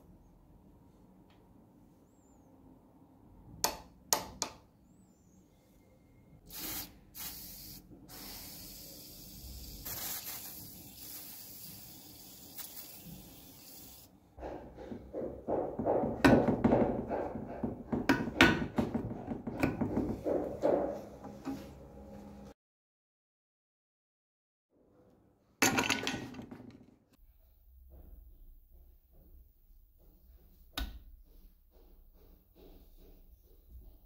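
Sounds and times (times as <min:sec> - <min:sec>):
aerosol can spraying: 0:06.5 - 0:14.1.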